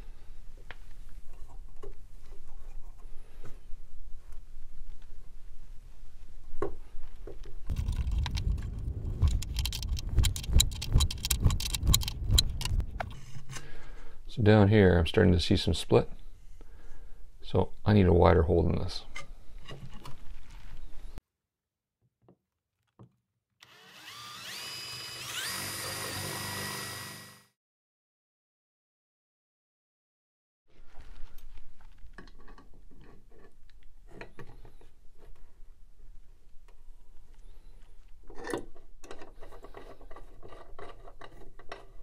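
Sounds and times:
electric drill whining into wood: 0:23.6 - 0:27.5.

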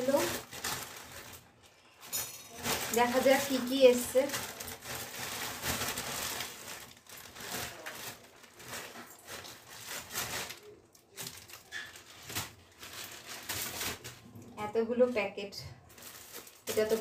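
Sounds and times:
plastic bag and foil rustling: 0:00.0 - 0:17.0.

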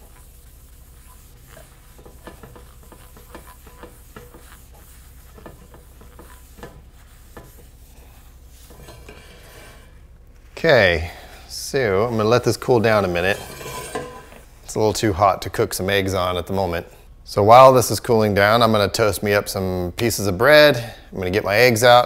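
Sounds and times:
cloth rubbing inside a skillet: 0:00.0 - 0:14.8
light scrapes and taps of pan: 0:01.0 - 0:07.8, 0:08.7 - 0:09.9.

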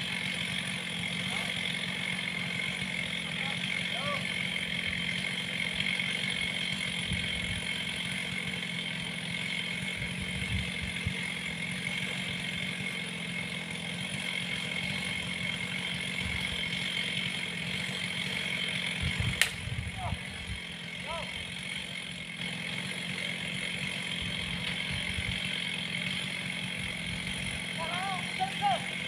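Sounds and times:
chainsaw idling: 0:00.0 - 0:29.0
sharp click: 0:19.4 - 0:19.6.

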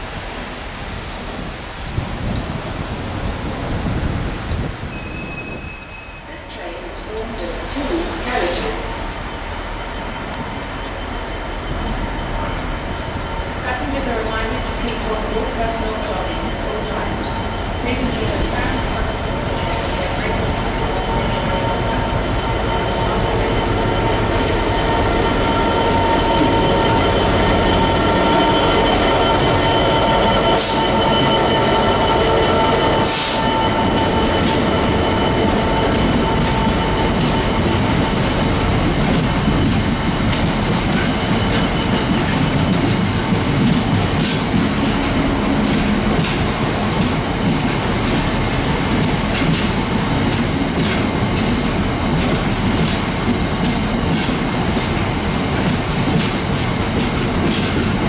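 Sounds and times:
train wheel and rail noise: 0:00.0 - 0:58.0
high whining tones: 0:20.6 - 0:39.6.

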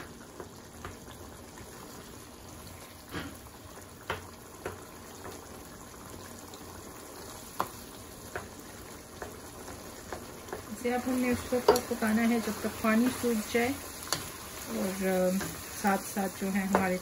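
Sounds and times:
sauce bubbling and sizzling in pan: 0:00.0 - 0:17.0
wooden spatula knocking against pan: 0:10.1 - 0:12.2, 0:16.6 - 0:17.0.

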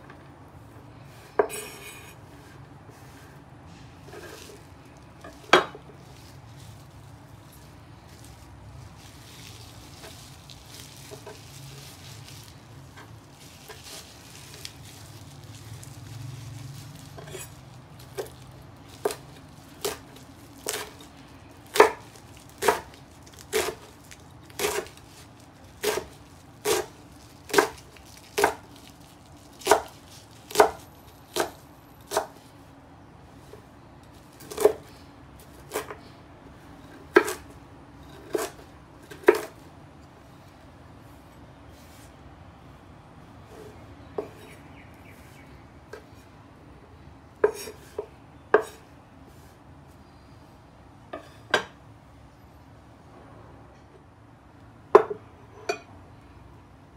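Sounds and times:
handling leaves: 0:00.5 - 0:46.5
knife chopping on wooden board: 0:20.6 - 0:21.0, 0:21.7 - 0:23.9, 0:24.6 - 0:24.9, 0:25.8 - 0:26.9, 0:27.5 - 0:27.8, 0:28.4 - 0:28.6, 0:29.6 - 0:29.9, 0:30.5 - 0:32.4, 0:37.1 - 0:37.4, 0:38.2 - 0:39.5.

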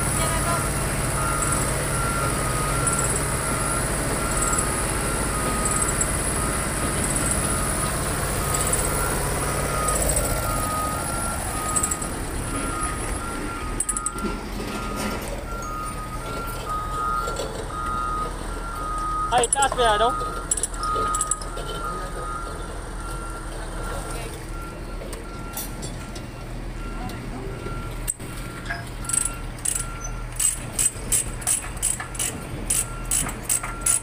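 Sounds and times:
diesel truck engine idling: 0:00.0 - 0:34.0
two-tone reversing alarm beeping: 0:00.0 - 0:34.0
metallic clinks: 0:20.5 - 0:21.8.

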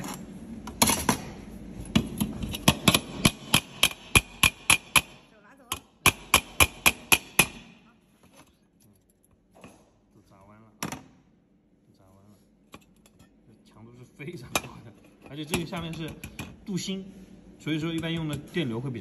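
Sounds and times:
hammer striking metal: 0:02.0 - 0:07.8.

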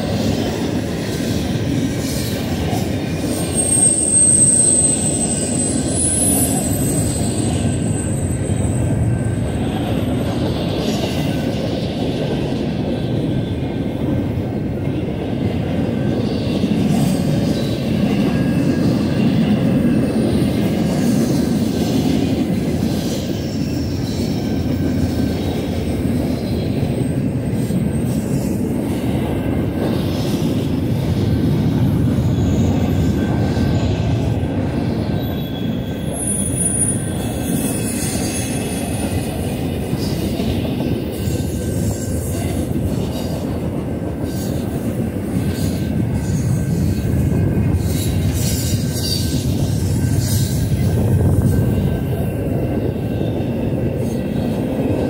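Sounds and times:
freight train wheels rumbling: 0:00.0 - 0:55.0
high wheel squeal: 0:02.1 - 0:11.7, 0:31.8 - 0:43.6, 0:44.2 - 0:54.8.

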